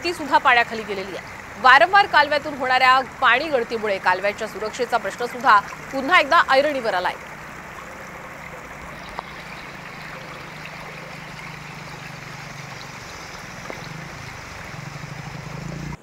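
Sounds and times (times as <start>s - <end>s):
floodwater rushing: 0.0s - 16.0s
motorcycle engine humming: 0.0s - 16.0s.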